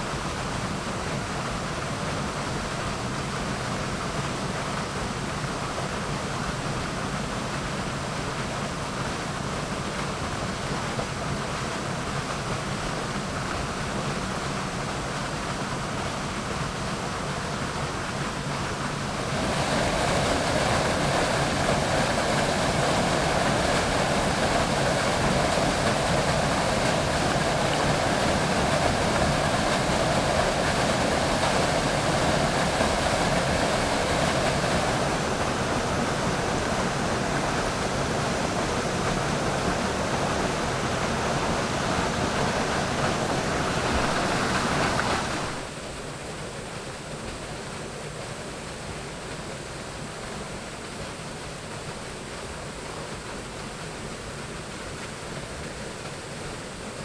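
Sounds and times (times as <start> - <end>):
water rushing: 0.0 - 57.0.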